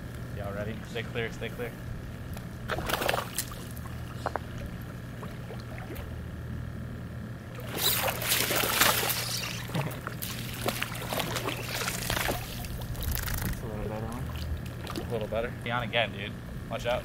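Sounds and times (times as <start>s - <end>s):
steady low hum: 0.0s - 17.0s
water splashing at pond edge: 2.7s - 4.2s, 7.5s - 15.3s.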